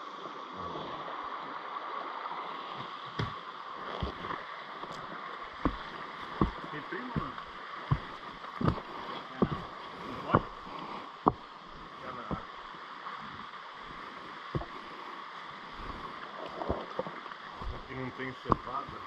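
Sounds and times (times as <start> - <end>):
river water rushing: 0.0 - 19.0
short knocks and thumps: 5.6 - 11.5, 14.5 - 14.8, 15.8 - 19.0.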